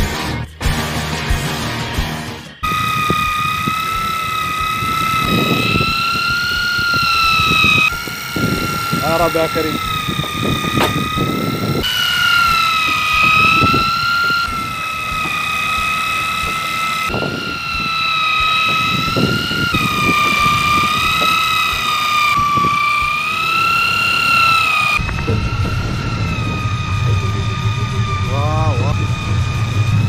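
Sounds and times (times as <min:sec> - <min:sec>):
electric fishing reel motor whining: 0:00.0 - 0:30.0
rumble: 0:25.0 - 0:30.0.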